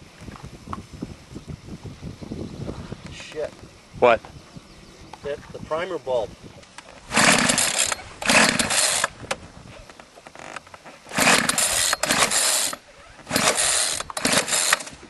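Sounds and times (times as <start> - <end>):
recoil starter pulls: 6.8 - 9.4, 10.2 - 15.0.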